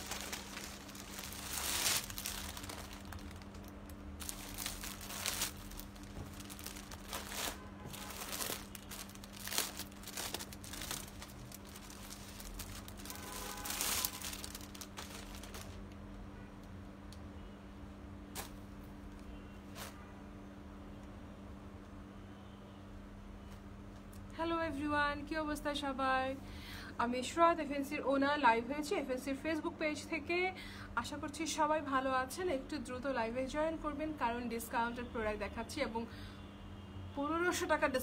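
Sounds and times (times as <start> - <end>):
material crinkling and rustling: 0.0 - 16.0
steady low hum: 0.0 - 22.3.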